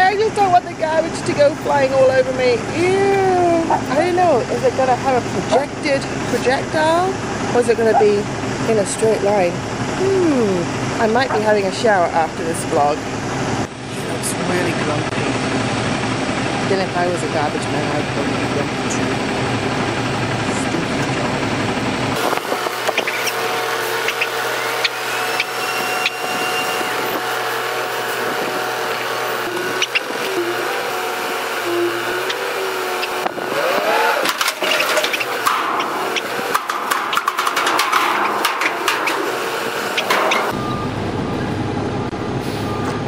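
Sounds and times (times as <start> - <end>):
garbage truck running: 0.0 - 43.0
garbage truck hydraulic whine: 18.6 - 43.0
dumpster clanks and rattles: 19.1 - 41.1.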